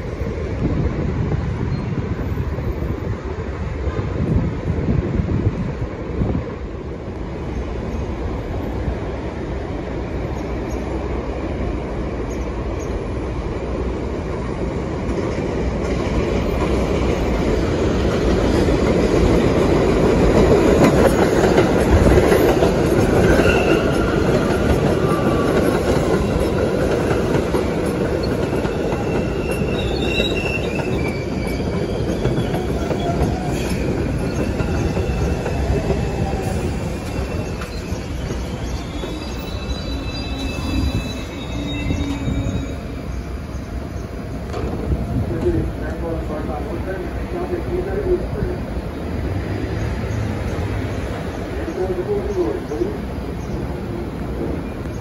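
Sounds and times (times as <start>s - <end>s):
train wheels rumbling: 0.0s - 55.0s
wheel and brake squeals: 23.2s - 25.4s, 28.2s - 43.6s.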